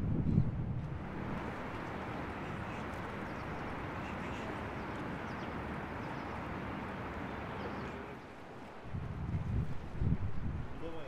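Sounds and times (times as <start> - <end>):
wind: 0.0 - 11.0
water noise: 0.6 - 11.0.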